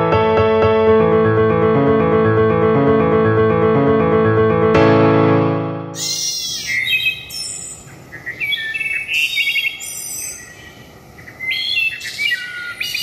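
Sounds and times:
bird trill: 5.9 - 13.0
outdoor background hiss: 5.9 - 13.0
small birds chirping: 6.0 - 13.0.

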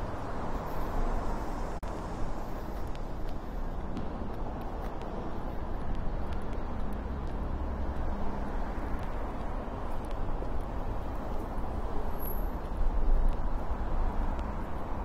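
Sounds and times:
city road traffic hum: 0.0 - 15.0.

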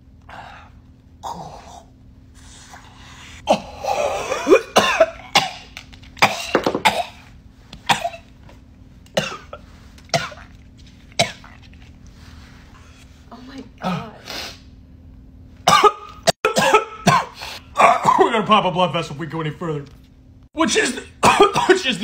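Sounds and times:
man coughing hard: 3.4 - 7.3, 7.9 - 8.3, 9.2 - 10.6, 11.2 - 11.6, 15.7 - 18.5, 21.1 - 22.0.

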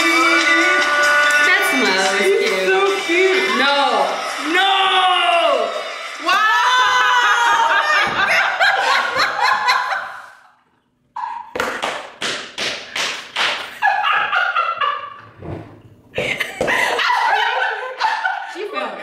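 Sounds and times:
women laughing: 6.9 - 10.5, 13.7 - 15.2, 16.2 - 19.0.

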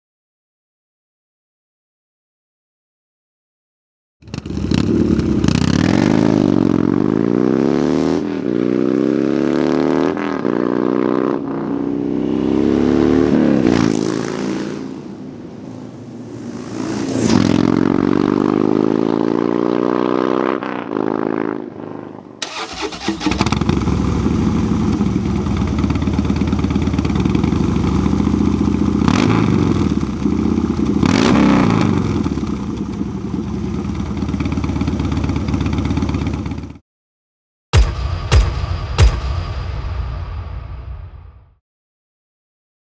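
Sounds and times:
motorcycle engine accelerating: 4.2 - 15.2, 16.0 - 36.8.

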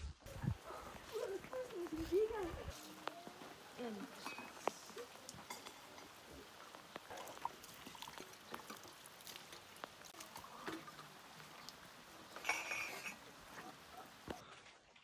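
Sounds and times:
water pouring and splashing: 0.3 - 15.0
glass and metal clinking: 5.4 - 6.1, 12.4 - 13.2.

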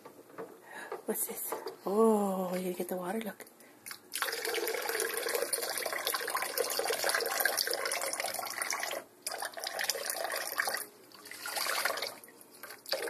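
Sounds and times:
water pouring into bathwater: 3.9 - 13.0.

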